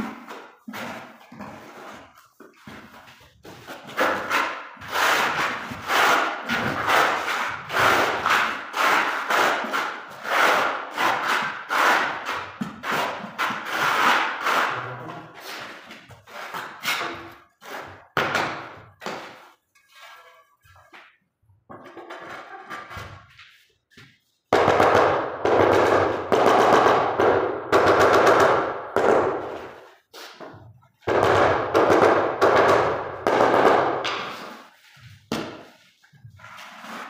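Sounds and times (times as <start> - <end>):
trowel scraping adhesive on concrete: 3.4 - 18.1, 34.2 - 37.0.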